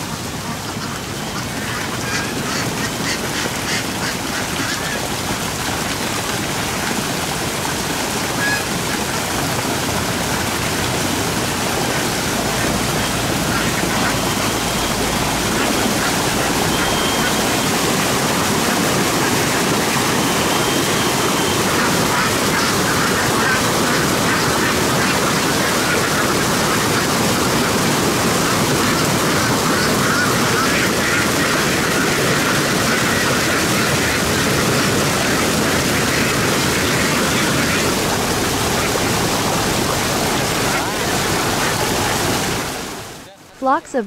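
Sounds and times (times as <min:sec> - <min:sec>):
ducks quacking: 0:00.1 - 0:05.4, 0:07.6 - 0:43.0.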